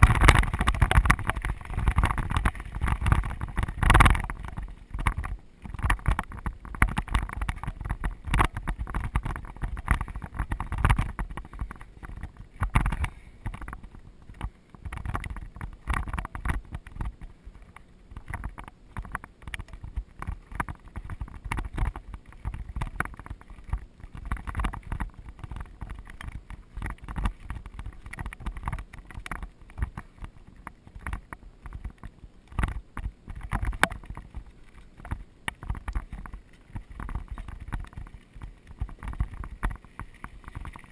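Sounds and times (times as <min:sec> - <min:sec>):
bike rattling and knocking: 0:00.0 - 0:40.9
bike tyres crunching on gravel: 0:00.0 - 0:40.9
wind rumble on microphone: 0:00.0 - 0:40.9.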